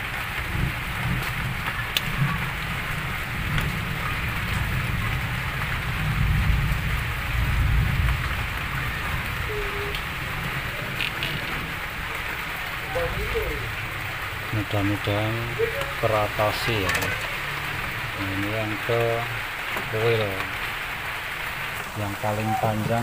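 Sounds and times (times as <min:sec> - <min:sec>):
low uneven rumble: 0:00.0 - 0:23.0
steady rain hiss: 0:00.0 - 0:23.0
faint clicks: 0:01.1 - 0:02.2, 0:09.9 - 0:10.1, 0:10.7 - 0:12.4.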